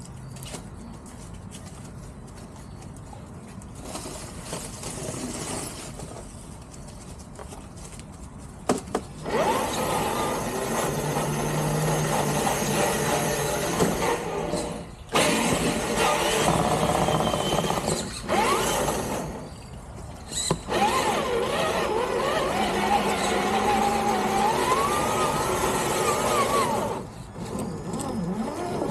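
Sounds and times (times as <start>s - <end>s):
toy truck electric motor whining: 9.2s - 19.5s, 20.2s - 28.9s.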